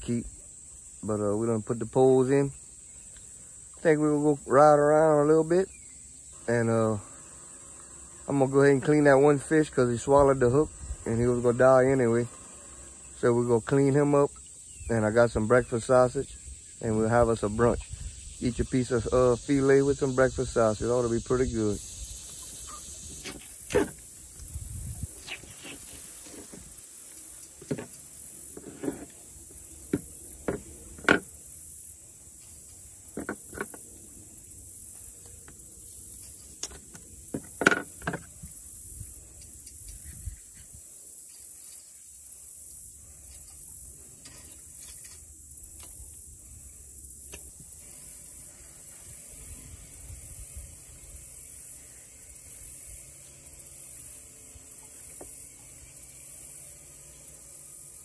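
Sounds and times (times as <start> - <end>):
steady high hiss: 0.0 - 58.0.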